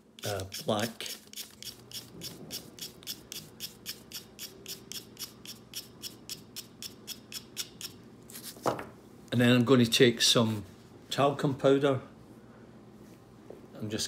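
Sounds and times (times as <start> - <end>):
knife blade scraping pastel stick: 0.2 - 8.6.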